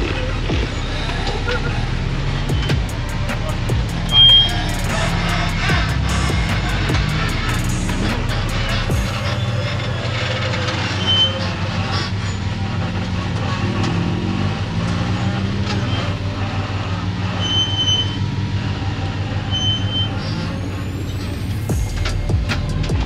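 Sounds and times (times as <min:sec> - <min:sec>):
buggy engine running: 0:00.0 - 0:23.0
short high squeaks: 0:00.2 - 0:12.5, 0:17.2 - 0:18.4, 0:19.4 - 0:22.8.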